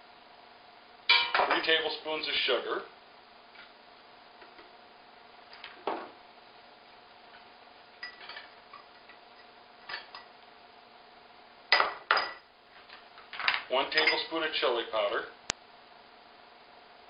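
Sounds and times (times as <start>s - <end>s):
faint steady hum: 0.0s - 17.0s
kitchen utensils clicking and clinking: 8.0s - 9.2s, 13.4s - 14.3s.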